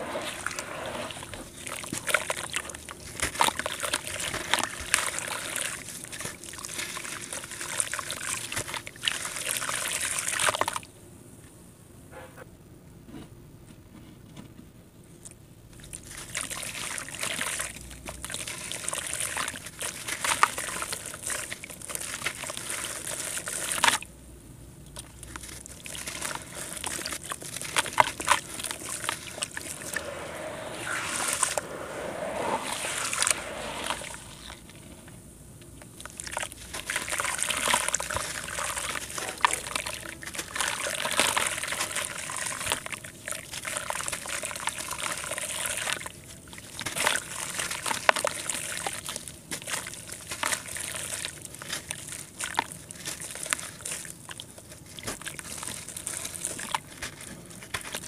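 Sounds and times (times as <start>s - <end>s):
water sloshing and dribbling: 0.0s - 10.8s, 15.8s - 24.1s, 25.0s - 35.2s, 35.8s - 58.0s
hands crumbling wet dirt: 24.9s - 30.1s, 35.8s - 58.0s.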